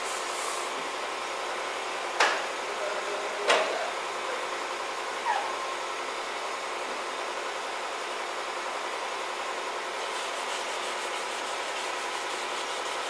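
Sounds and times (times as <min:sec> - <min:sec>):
short sharp squeaks: 0:05.2 - 0:05.7.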